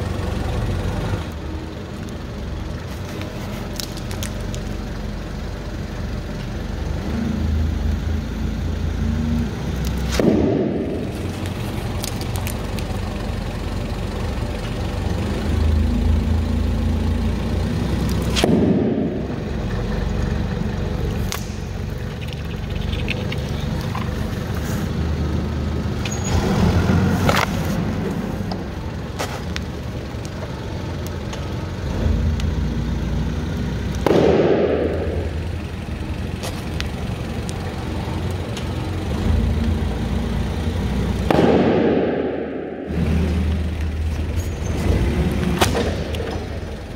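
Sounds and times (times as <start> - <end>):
heavy vehicle engine rumble: 0.0 - 46.9
sharp bursting pops: 34.0 - 35.3, 41.2 - 42.5.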